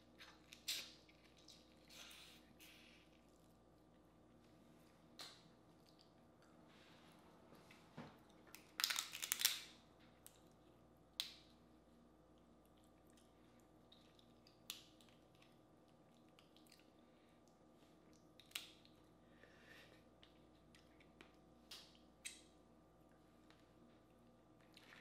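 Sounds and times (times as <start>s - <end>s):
shells cracking while peeled: 8.5s - 10.4s.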